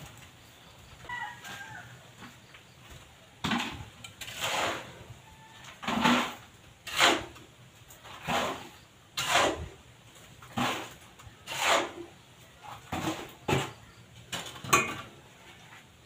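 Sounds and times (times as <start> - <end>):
hand tool scraping wet concrete: 3.4 - 5.1, 5.7 - 9.8, 10.4 - 13.8.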